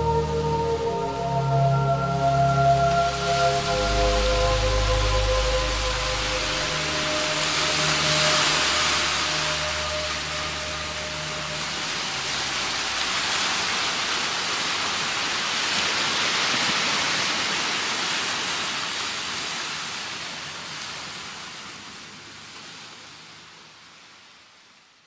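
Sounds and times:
steady rushing hiss: 0.0s - 16.5s.

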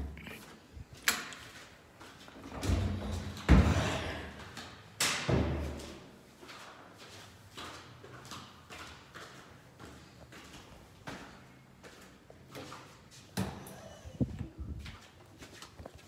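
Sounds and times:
door opening and shutting: 2.4s - 4.0s.

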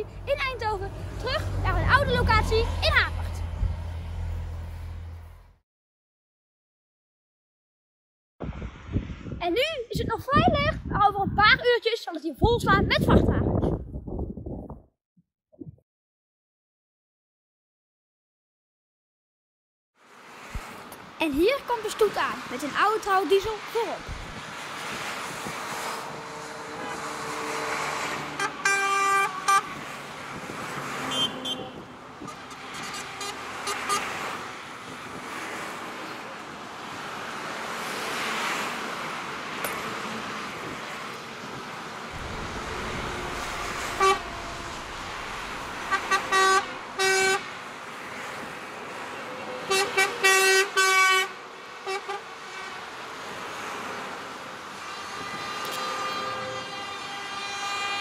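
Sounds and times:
lorries driving past: 0.0s - 5.6s, 20.1s - 58.0s
truck horn blasts: 25.9s - 30.0s, 30.8s - 34.4s, 42.2s - 47.5s, 49.4s - 52.8s, 54.8s - 58.0s.

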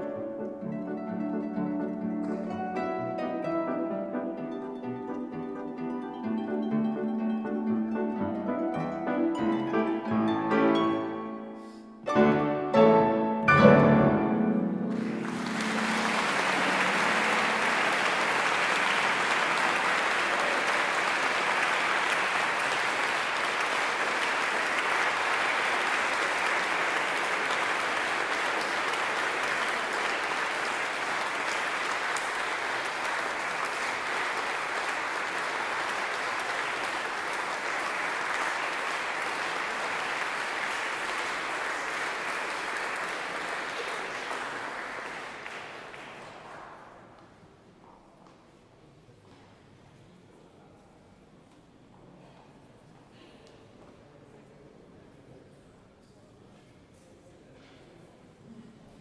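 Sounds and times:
audience applause: 0.0s - 11.3s, 13.1s - 47.2s
harp and piano chords: 0.0s - 18.5s.

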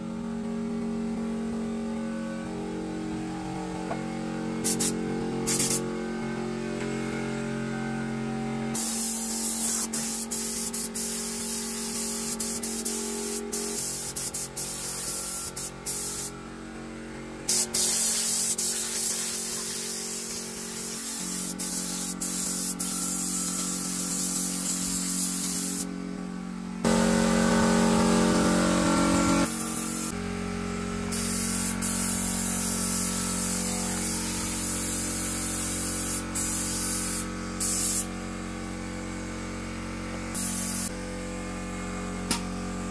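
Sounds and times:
paint spray gun hissing: 4.6s - 5.8s, 8.8s - 16.3s, 17.5s - 26.0s, 29.4s - 30.2s, 31.1s - 38.1s, 40.3s - 40.9s.

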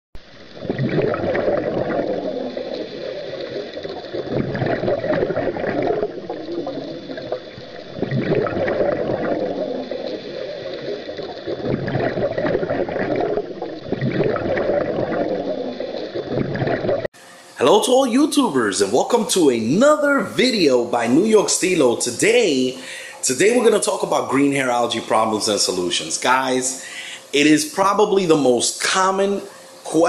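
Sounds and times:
bubbling gurgling water: 0.2s - 17.1s.

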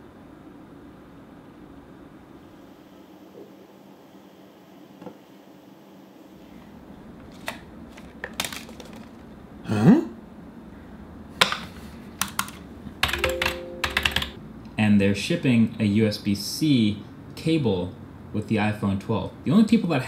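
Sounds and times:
smartphone being handled: 7.2s - 9.2s
computer keyboard typing: 12.2s - 14.4s.

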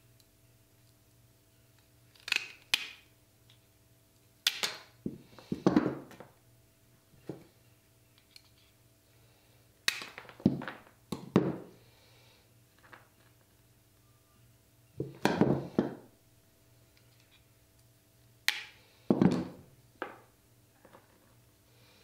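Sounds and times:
tile nippers snapping tile: 2.1s - 3.0s, 4.4s - 4.9s, 18.5s - 18.8s.

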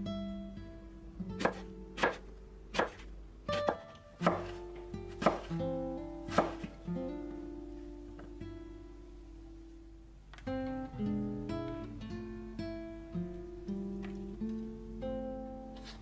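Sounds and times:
knife chopping on cutting board: 1.4s - 4.6s, 5.2s - 5.5s, 6.3s - 6.7s.

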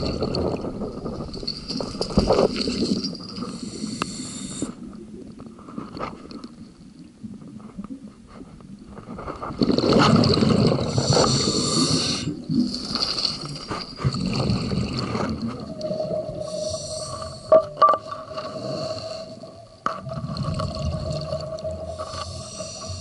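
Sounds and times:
regulator hissing inhalation: 3.4s - 4.8s, 10.9s - 12.4s, 16.4s - 17.5s, 21.9s - 23.0s
exhaled bubbles rushing: 9.5s - 16.6s, 20.0s - 22.0s.

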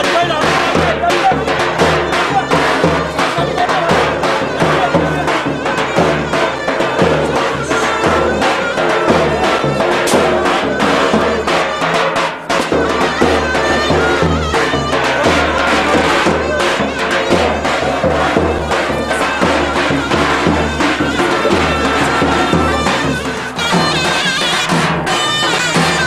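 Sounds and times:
bass drum steady beat: 0.0s - 26.0s
shrill reed wind instrument melody: 0.0s - 26.0s.

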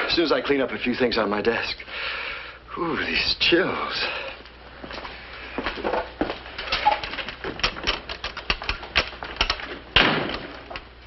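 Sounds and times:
irregular clicking and clacking: 5.7s - 10.9s.

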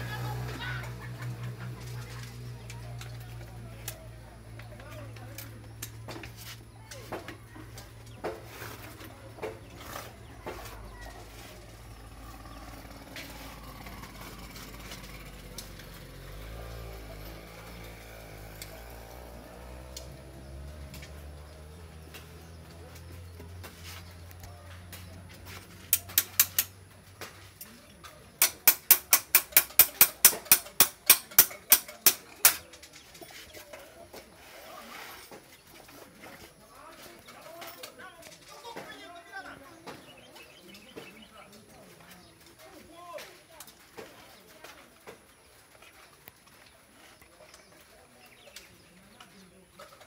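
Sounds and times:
metallic clicks from bicycle hub: 25.9s - 26.8s.

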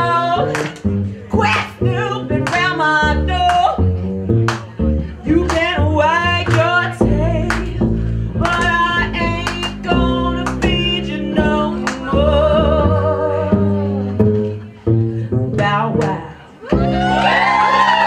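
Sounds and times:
person singing into microphone: 8.4s - 14.1s.

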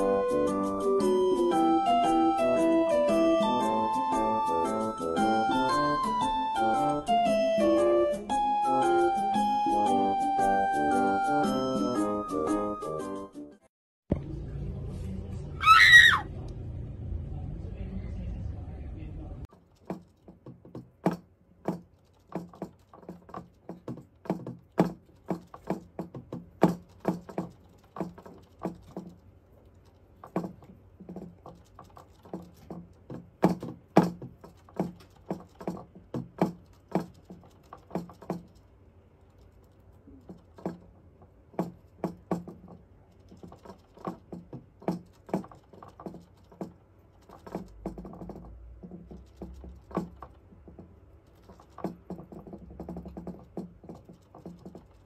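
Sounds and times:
hamster drinking from water bottle: 19.5s - 55.0s.

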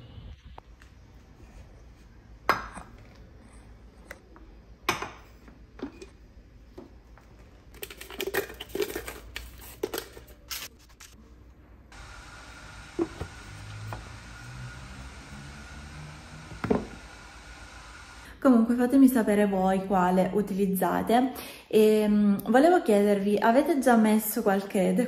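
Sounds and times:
steady hiss: 11.9s - 18.2s.

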